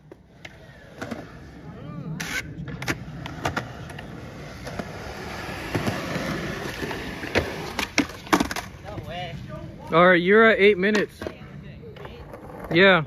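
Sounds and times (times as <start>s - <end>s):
skateboard wheels rolling on concrete: 0.0s - 13.0s
skateboard clacking on ground: 5.6s - 9.2s.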